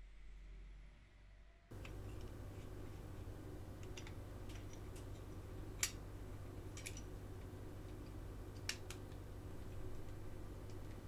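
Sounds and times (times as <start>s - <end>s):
low hum: 0.0s - 11.0s
metal model parts clicking: 6.7s - 7.1s.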